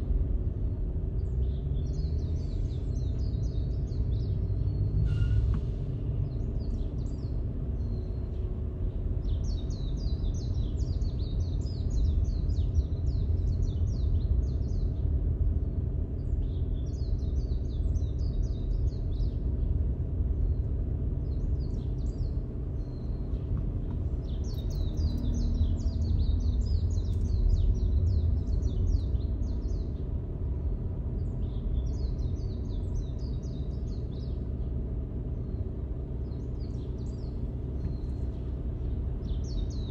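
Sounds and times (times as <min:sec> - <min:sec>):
car rumbling in traffic: 0:00.0 - 0:39.9
birds chirping: 0:20.3 - 0:39.9.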